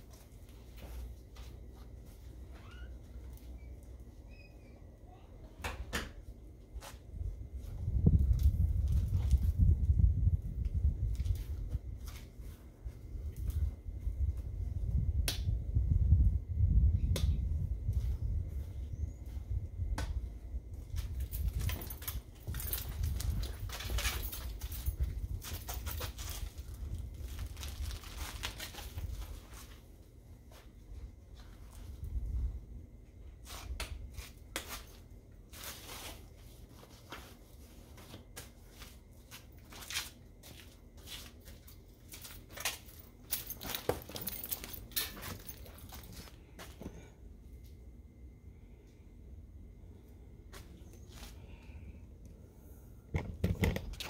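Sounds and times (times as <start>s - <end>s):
wind rumble on microphone: 7.1s - 29.4s, 31.7s - 32.8s
plastic packaging crinkling: 25.8s - 29.5s.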